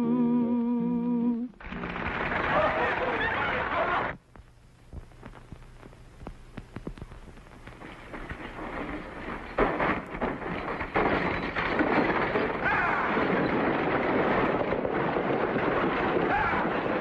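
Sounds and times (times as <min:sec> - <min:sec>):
stagecoach and galloping horses: 0:07.8 - 0:17.0
people shouting: 0:12.6 - 0:13.2, 0:16.2 - 0:17.0.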